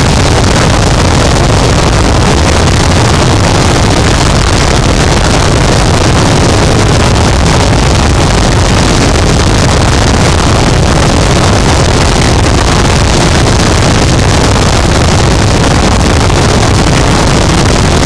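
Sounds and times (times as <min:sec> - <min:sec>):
dense distorted static noise: 0:00.0 - 0:18.0.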